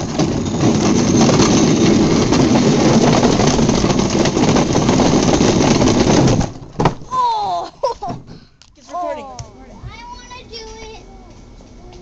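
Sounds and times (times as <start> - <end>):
go-kart wheels rolling over bricks: 0.0 - 8.4.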